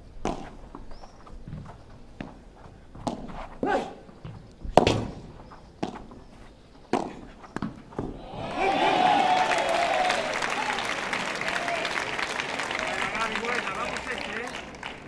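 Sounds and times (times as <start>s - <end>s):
ball bouncing on court: 4.2s - 5.2s
crowd applause: 8.2s - 15.0s.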